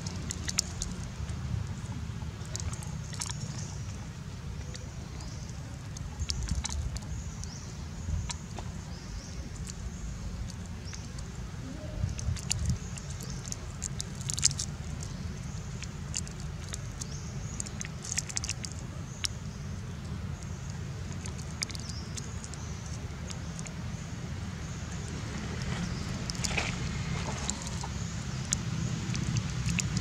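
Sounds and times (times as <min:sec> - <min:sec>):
scattered clicks and crackles: 0:00.0 - 0:01.8, 0:12.2 - 0:19.4, 0:25.6 - 0:30.0
steady low rumble: 0:00.0 - 0:30.0.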